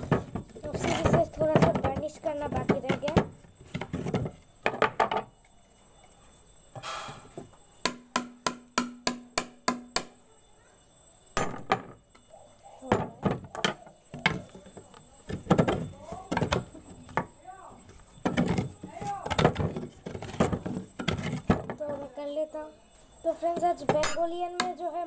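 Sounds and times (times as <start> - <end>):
stick knocking bamboo tube: 7.8 - 10.2.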